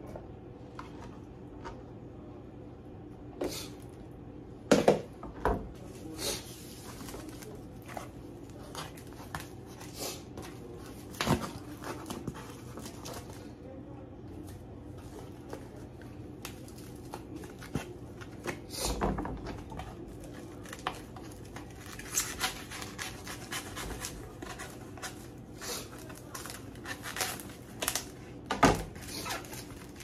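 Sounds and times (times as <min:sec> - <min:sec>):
food packaging rustling and scraping: 0:05.8 - 0:13.6, 0:19.5 - 0:30.0.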